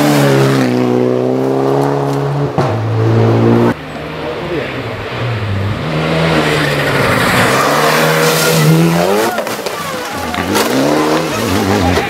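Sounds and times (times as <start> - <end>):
rally car engine revving: 0.0 - 12.0
car crashing into trees: 7.0 - 12.0.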